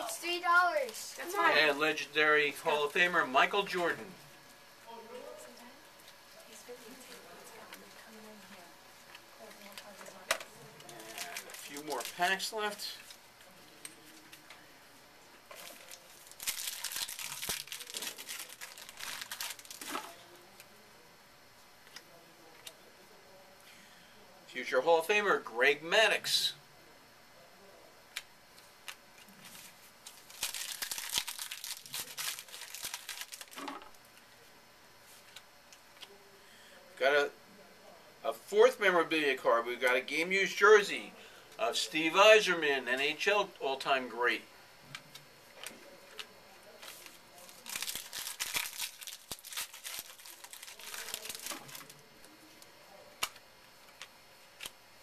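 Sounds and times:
card pack wrapper tearing and crinkling: 0:10.9 - 0:12.4, 0:15.5 - 0:20.2, 0:30.1 - 0:33.9, 0:46.8 - 0:52.0.

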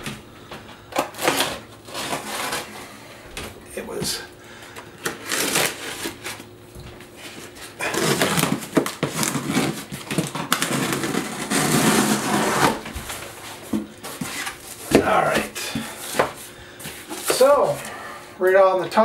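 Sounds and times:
packing tape tearing: 0:00.9 - 0:02.8, 0:05.0 - 0:06.5, 0:07.6 - 0:13.3.

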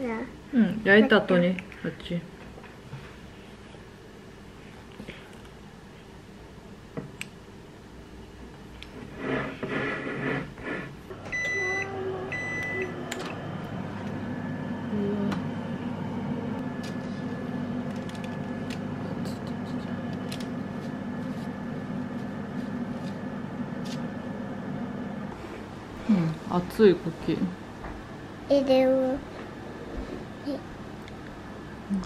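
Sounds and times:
oven fan humming: 0:00.0 - 0:32.0
oven electronic beeps: 0:11.2 - 0:13.4.

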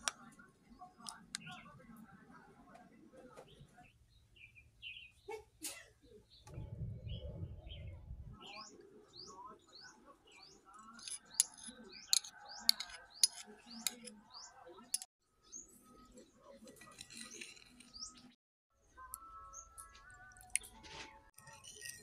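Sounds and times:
small birds chirping: 0:00.0 - 0:22.0
low rumble: 0:06.5 - 0:08.5.

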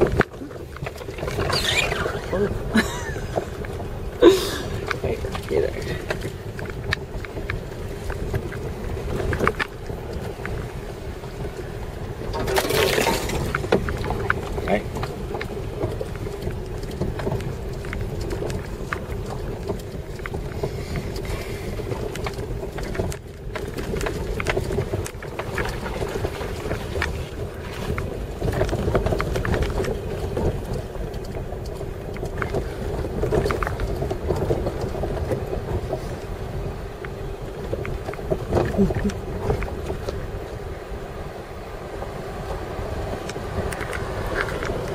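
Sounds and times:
knocks and rattles over bumps: 0:00.0 - 0:44.9
low road rumble: 0:00.0 - 0:44.9.

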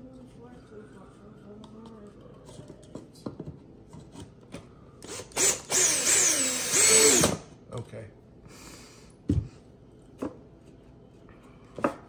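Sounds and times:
cordless drill driving screw: 0:05.0 - 0:07.4.

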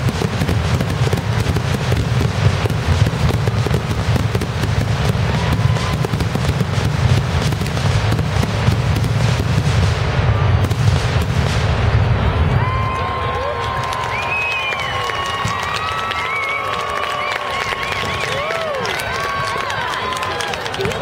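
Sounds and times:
fireworks booming: 0:00.0 - 0:14.0
fireworks cracking and crackling: 0:00.0 - 0:21.0.

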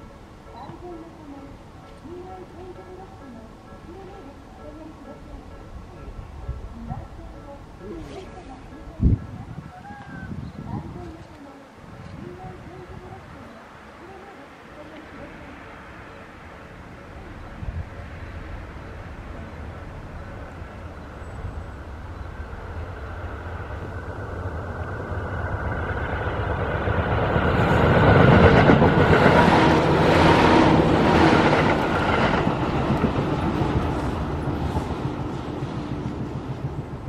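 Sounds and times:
electric train passing: 0:00.0 - 0:37.0
wheels rattling over rail joints: 0:14.8 - 0:37.0.

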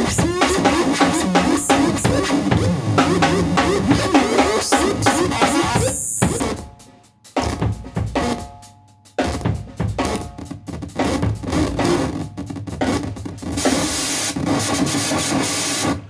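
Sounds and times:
harsh electric guitar noise: 0:00.0 - 0:06.6
drum kit with cymbals: 0:00.0 - 0:16.0.

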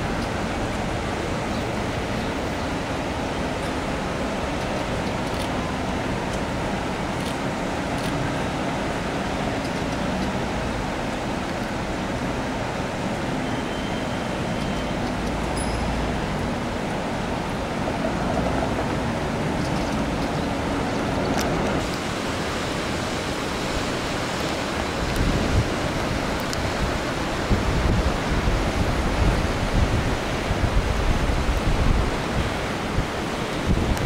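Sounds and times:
flooded river rushing: 0:00.0 - 0:34.0
wind rumble on microphone: 0:16.4 - 0:34.0.

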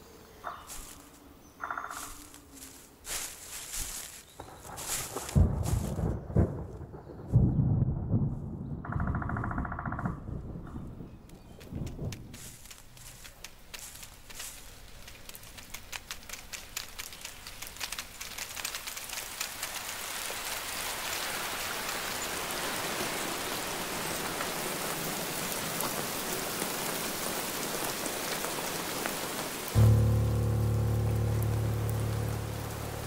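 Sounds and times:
rain falling: 0:02.0 - 0:07.5, 0:10.3 - 0:33.0
low sustained musical note: 0:29.8 - 0:33.0.

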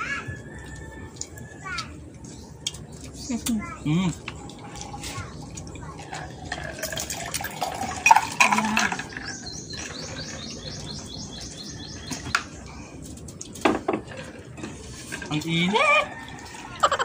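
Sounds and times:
eating and table sounds: 0:00.0 - 0:17.0
clinks and clatter: 0:05.8 - 0:10.8
bird chirping: 0:08.1 - 0:12.7.

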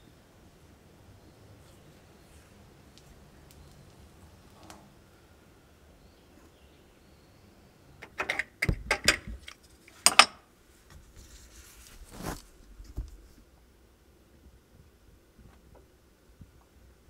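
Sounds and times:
metallic clinks and knocks: 0:08.0 - 0:10.4
scraping rustle: 0:10.7 - 0:13.5.

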